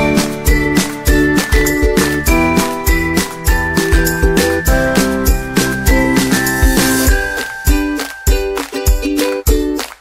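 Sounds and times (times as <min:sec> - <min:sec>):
upbeat music with drum beat: 0:00.0 - 0:10.0.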